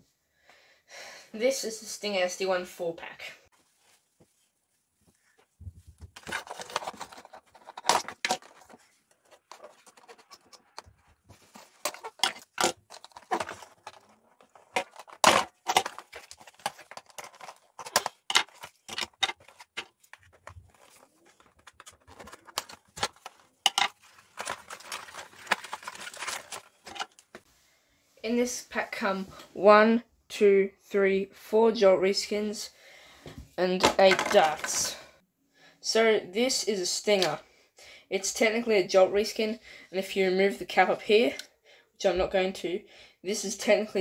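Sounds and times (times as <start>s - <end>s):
rustling and scraping: 3.5s - 27.5s.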